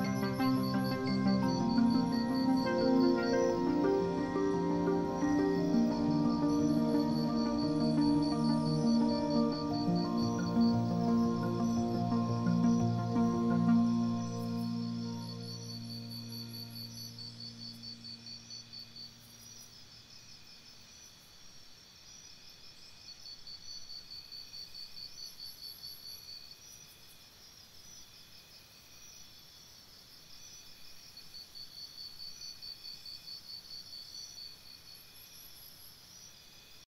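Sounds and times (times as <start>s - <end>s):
very high chirps: 0.0s - 18.1s
low music tone: 0.0s - 18.2s
crickets chirping: 0.0s - 36.8s.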